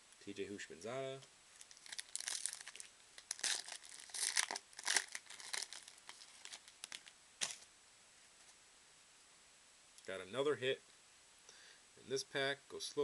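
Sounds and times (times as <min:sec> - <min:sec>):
foil wrapper tearing and crinkling: 0:01.6 - 0:07.6.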